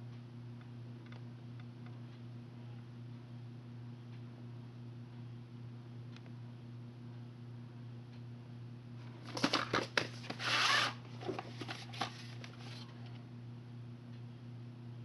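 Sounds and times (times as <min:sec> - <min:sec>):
cassette rubbing scrape: 0:09.4 - 0:13.0.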